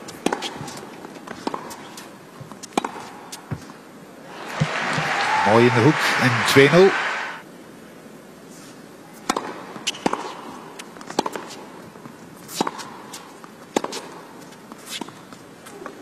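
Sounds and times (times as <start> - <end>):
racquets striking tennis ball: 0.1 - 3.7, 9.3 - 11.6, 12.5 - 15.2
low arena hush: 4.2 - 7.4.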